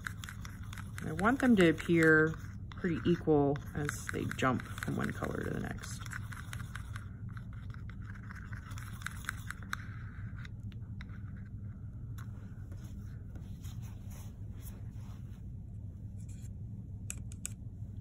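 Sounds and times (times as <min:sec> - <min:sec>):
palette knife scraping paint: 0:00.0 - 0:11.7
low room hum: 0:00.0 - 0:18.0.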